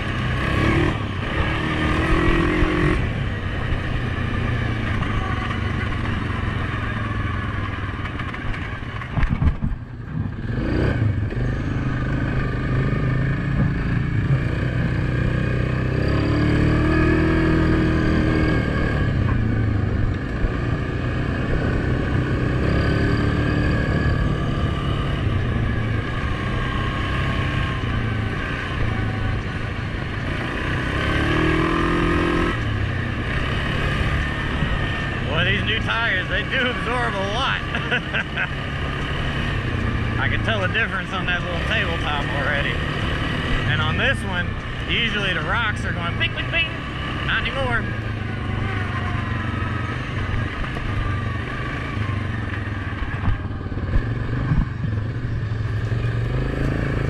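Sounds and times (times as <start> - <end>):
atv engine running: 0.0 - 57.0
atv knocking over bumps: 8.0 - 10.3.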